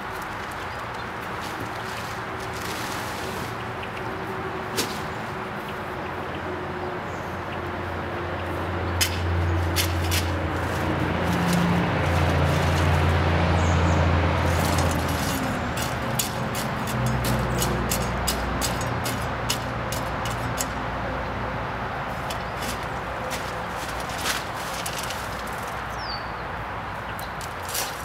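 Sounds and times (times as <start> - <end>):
low engine rumble: 0.0 - 27.5
hand shovel scraping soil and gravel: 1.4 - 3.6, 9.0 - 13.3, 14.2 - 20.8, 22.1 - 25.9, 27.4 - 28.0.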